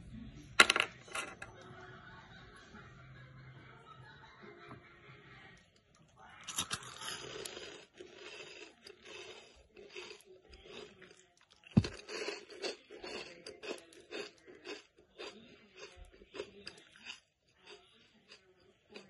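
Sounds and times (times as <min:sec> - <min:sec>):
crispy rolls crunching: 0:06.4 - 0:19.0.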